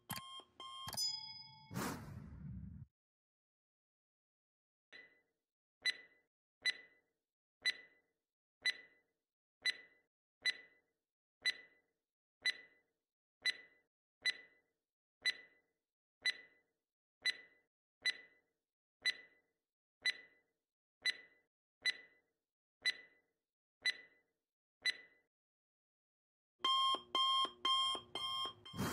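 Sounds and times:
clock ticking: 5.8s - 6.9s, 7.6s - 7.9s, 8.6s - 8.9s, 9.6s - 10.7s, 11.4s - 11.7s, 12.4s - 12.7s, 13.4s - 14.5s, 15.2s - 15.5s, 17.2s - 18.3s, 19.0s - 19.3s, 20.0s - 20.3s, 26.6s - 28.9s.

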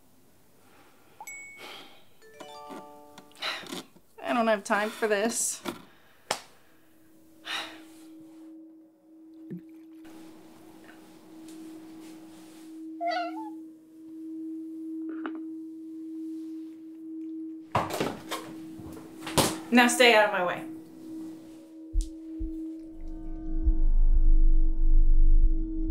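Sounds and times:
steady held tone: 6.8s - 25.9s
cat meowing: 13.0s - 13.6s.

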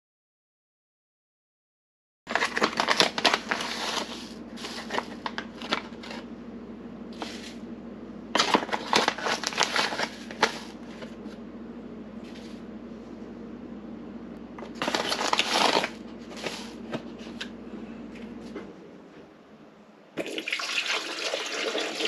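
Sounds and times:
coffee bag crinkling: 2.3s - 6.3s, 8.4s - 11.2s, 14.6s - 16.8s
steady low hum: 2.3s - 20.2s.

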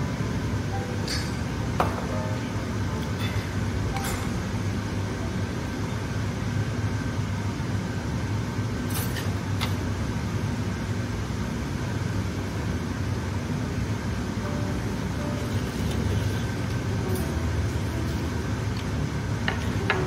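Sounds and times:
low mechanical room hum: 0.0s - 20.0s.

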